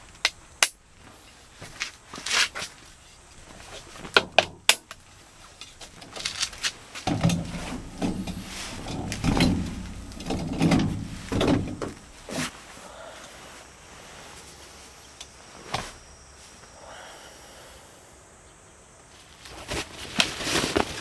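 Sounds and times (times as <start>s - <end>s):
cot creaking and thumping: 1.6s - 12.6s
sharp clicks of cot frame: 4.0s - 5.0s.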